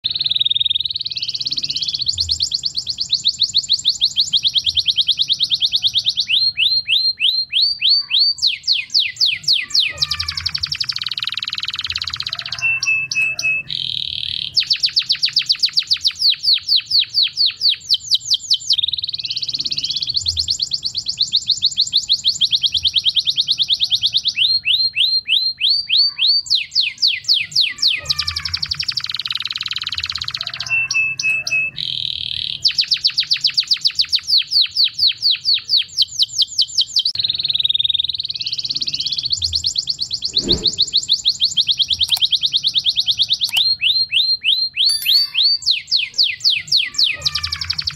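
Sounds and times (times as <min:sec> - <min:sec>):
canary singing trills: 0:00.0 - 0:47.9.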